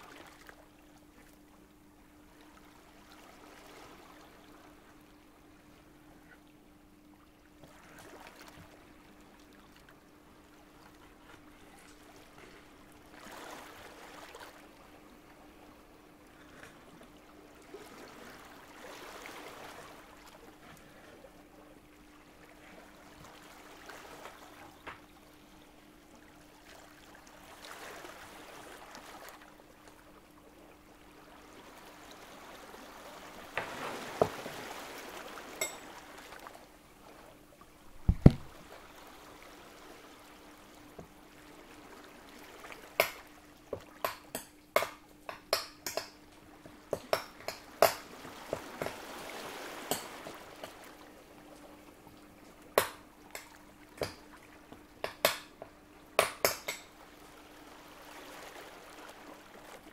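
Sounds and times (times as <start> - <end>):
faint steady hum: 0.0 - 59.9
heavy thud: 38.0 - 38.5.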